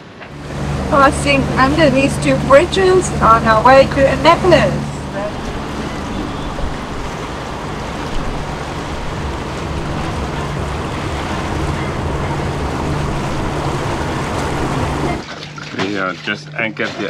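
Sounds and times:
low hum: 0:00.0 - 0:15.8
wind and water rushing: 0:00.0 - 0:16.6.

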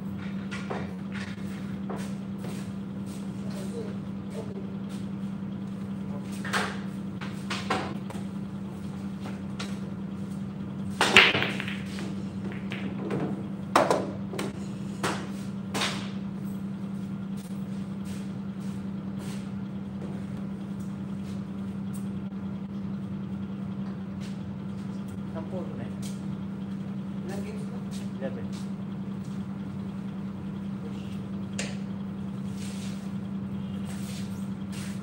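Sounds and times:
steady low hum: 0:00.0 - 0:35.0
pool balls clacking: 0:10.9 - 0:16.0
cue ball cracking into rack: 0:11.0 - 0:16.2.

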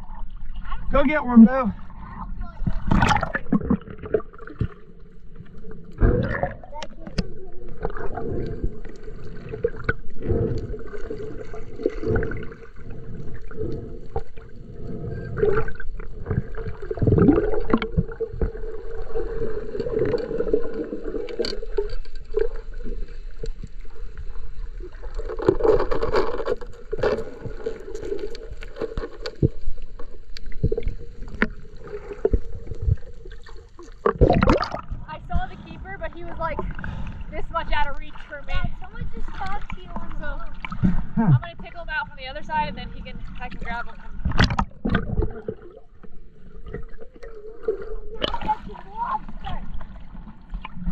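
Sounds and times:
gurgling water: 0:00.0 - 0:50.9
muffled underwater hum: 0:28.9 - 0:50.9.

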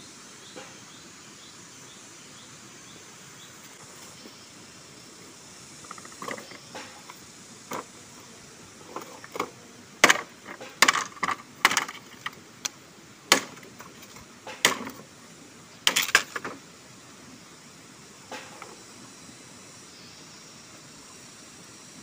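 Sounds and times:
bamboo poles knocking together: 0:05.8 - 0:07.9, 0:08.8 - 0:15.0, 0:15.8 - 0:16.6.

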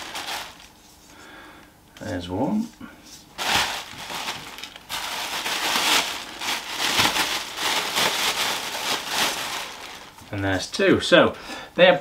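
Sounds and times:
plastic packaging crinkling: 0:00.0 - 0:01.0, 0:03.2 - 0:10.6.

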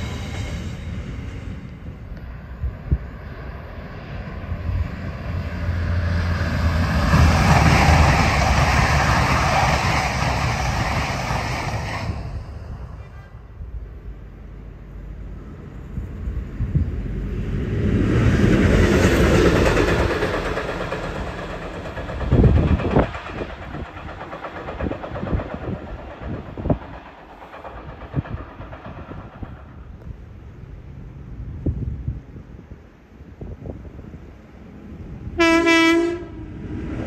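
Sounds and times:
train passing: 0:00.0 - 0:37.0
wheels clacking over rail joints: 0:18.0 - 0:30.4.

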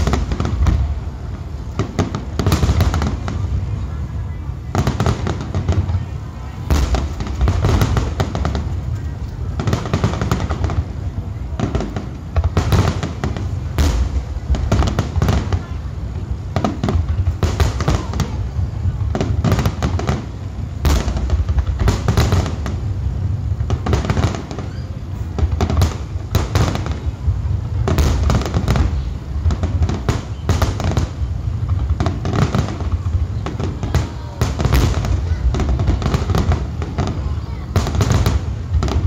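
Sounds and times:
continuous low rumble: 0:00.0 - 0:39.0.

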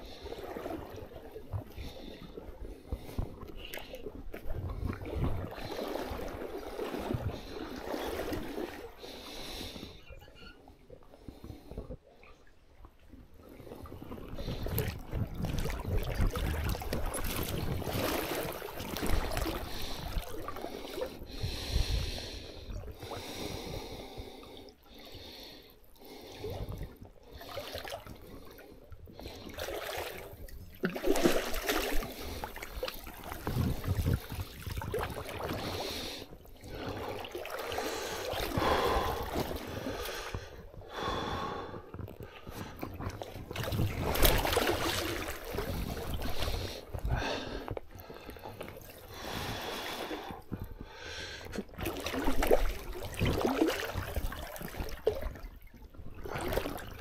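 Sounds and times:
water trickling and splashing: 0:00.0 - 0:09.3, 0:13.4 - 0:21.4, 0:26.0 - 0:41.4, 0:42.0 - 0:57.0
person breathing hard: 0:19.4 - 0:26.7, 0:35.6 - 0:42.8, 0:46.3 - 0:51.6.

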